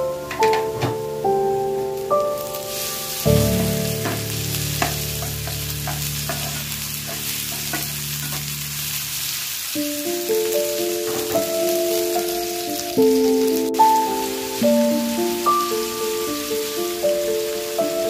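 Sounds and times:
onions sizzling in hot oil: 0.0 - 18.0
spatula scraping and tapping pan: 3.6 - 8.6.

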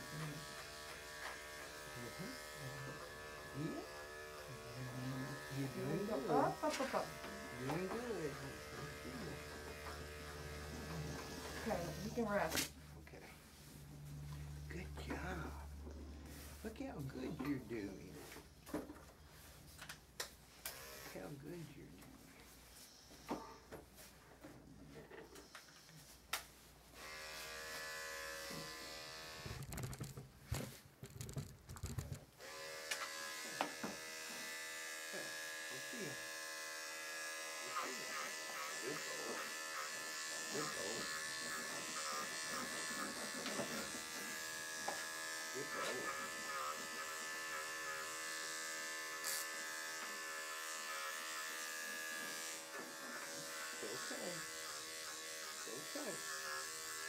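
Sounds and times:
electric clipper humming: 0.0 - 12.7, 20.6 - 21.3, 26.9 - 29.7, 32.4 - 57.0.

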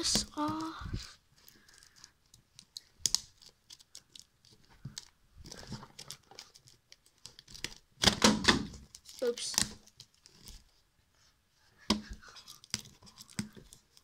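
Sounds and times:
cardboard crackle: 0.0 - 10.9.

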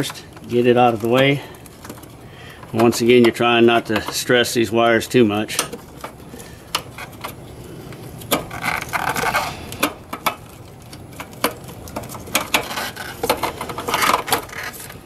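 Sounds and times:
rubbing scrape: 12.0 - 15.0.

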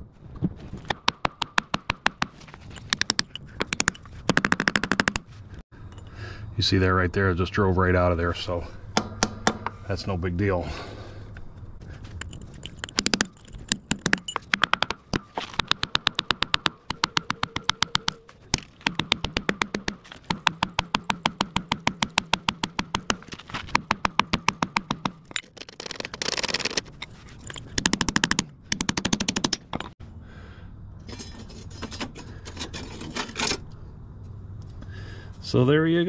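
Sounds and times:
hammer striking steel punch: 8.9 - 9.8.

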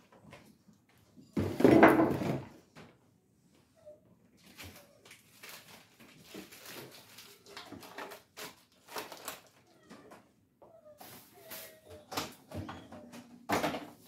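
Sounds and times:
food packaging rustling: 4.4 - 9.7.

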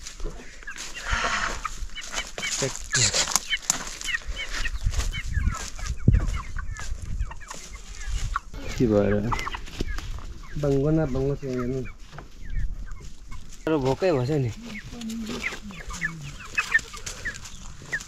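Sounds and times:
chickens clucking: 0.0 - 18.0
longer lower chicken calls: 14.5 - 18.0.

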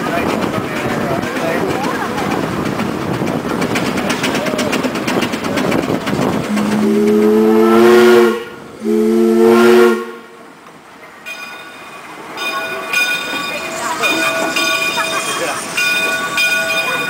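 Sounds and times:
steam engine rhythmic running: 0.0 - 10.0
steam whistle blasts: 6.5 - 10.2.

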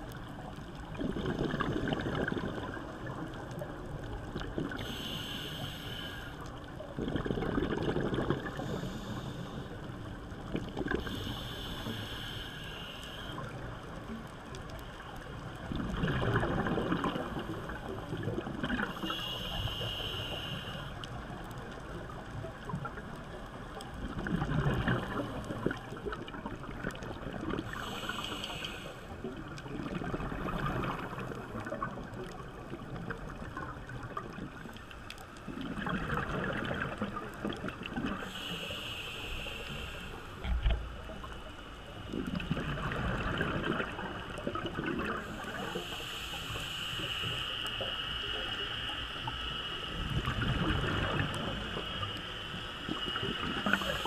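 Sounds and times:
exhaled bubbles underwater: 0.0 - 5.2, 6.6 - 9.7, 15.5 - 19.8, 21.7 - 28.6, 29.2 - 34.8, 35.5 - 38.6, 40.4 - 47.4, 49.2 - 52.2, 52.8 - 54.0
hissing inhale through regulator: 4.3 - 6.8, 8.2 - 14.8, 17.0 - 21.7, 27.6 - 32.4, 36.4 - 54.0.

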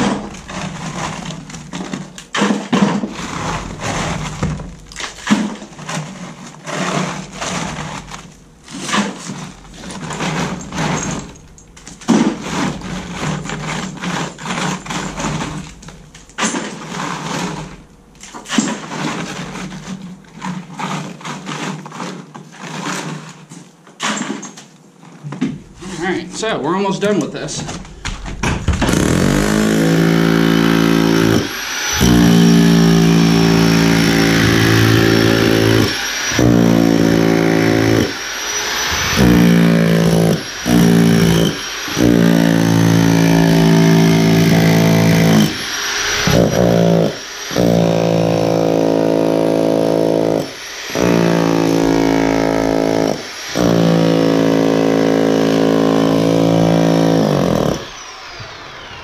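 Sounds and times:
rotary hammer chiselling wood: 28.4 - 58.0.

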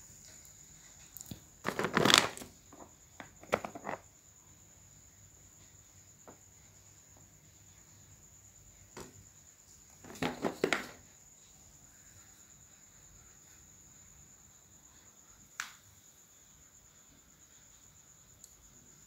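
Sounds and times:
crickets trilling: 0.0 - 19.0
plastic snack bag crinkling: 1.3 - 4.0.

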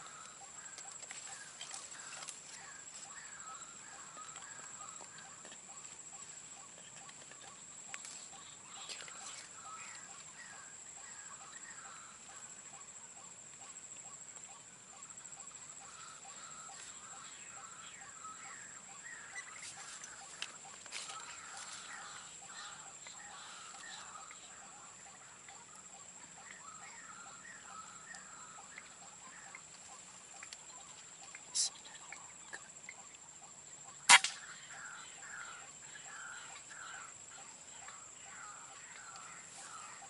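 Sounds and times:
high insect whine: 0.0 - 40.0
air rifle shot: 34.1 - 34.4.

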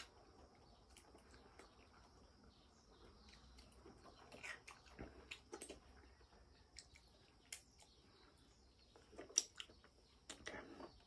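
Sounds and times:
wet eating clicks and smacks: 3.2 - 6.1, 6.7 - 8.0, 9.0 - 10.6.

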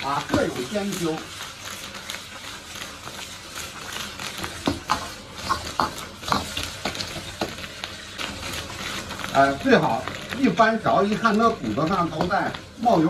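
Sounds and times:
bones sizzling in a wok: 0.0 - 13.0.

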